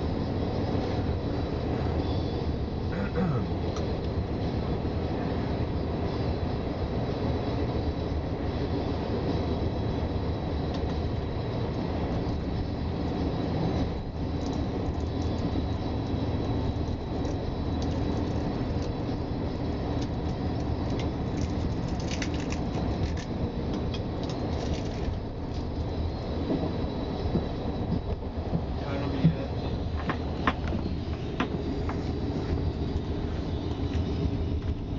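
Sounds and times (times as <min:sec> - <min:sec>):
train wheels rumbling on rails: 0:00.0 - 0:34.9
sharp clicks and rattles: 0:20.0 - 0:25.1.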